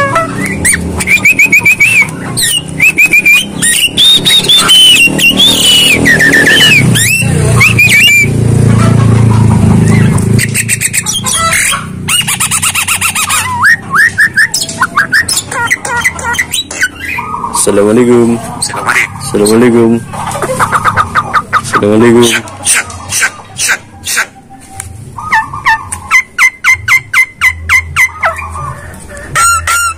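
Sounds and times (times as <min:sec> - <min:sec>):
bird singing whistled notes: 0:00.4 - 0:08.3, 0:10.4 - 0:17.5.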